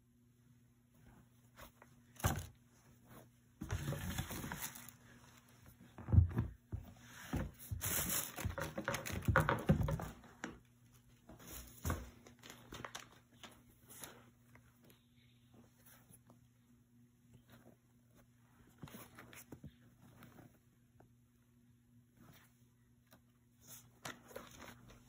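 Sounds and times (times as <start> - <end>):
plastic rustling and crinkling: 1.5 - 10.0, 11.4 - 14.7.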